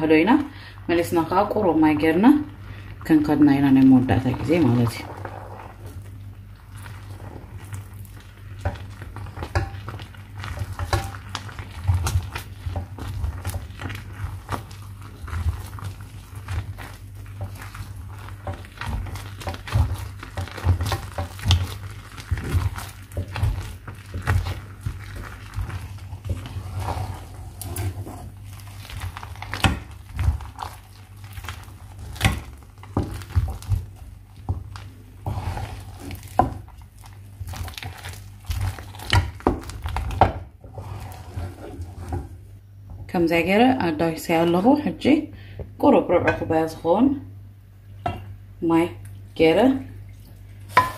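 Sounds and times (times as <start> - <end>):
wooden spoon stirring thick dough: 0.0 - 46.8, 49.4 - 50.9
dough thumping against pot: 8.6 - 16.8, 36.0 - 40.6.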